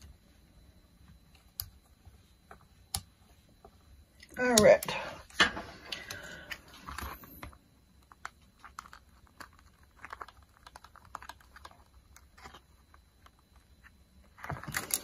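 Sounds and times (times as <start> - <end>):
plastic sheet clicking and crackling: 6.8 - 15.0.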